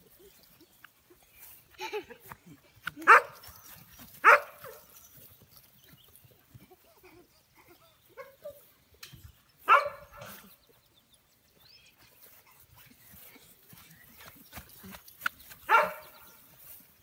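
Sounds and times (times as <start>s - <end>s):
puppy barking: 3.1s - 3.4s, 4.2s - 4.8s, 9.7s - 10.4s, 15.7s - 16.2s.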